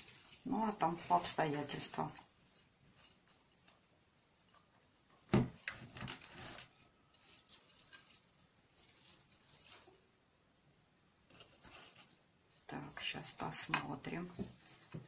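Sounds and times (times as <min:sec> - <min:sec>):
potting soil crumbling: 0:00.0 - 0:04.0, 0:05.2 - 0:10.1
leaves and stems rustling: 0:00.0 - 0:10.2, 0:11.3 - 0:15.0.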